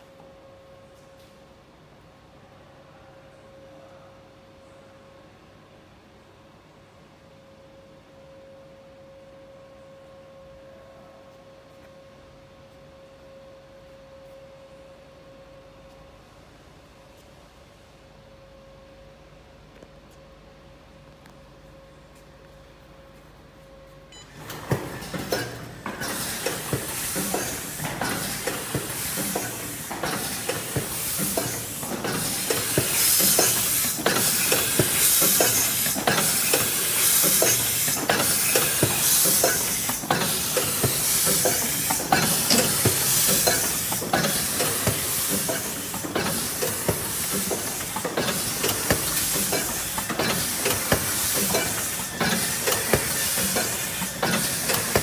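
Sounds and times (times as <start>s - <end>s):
pneumatic hiss bursts: 25.0s - 55.0s.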